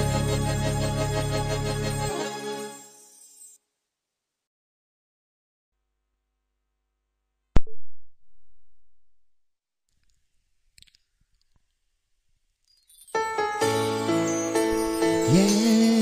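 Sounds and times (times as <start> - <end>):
music: 0.0 - 3.7, 13.1 - 16.0.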